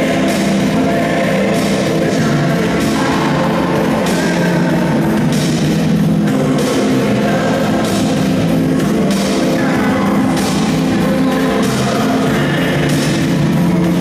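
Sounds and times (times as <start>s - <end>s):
loud dance music: 0.0s - 14.0s.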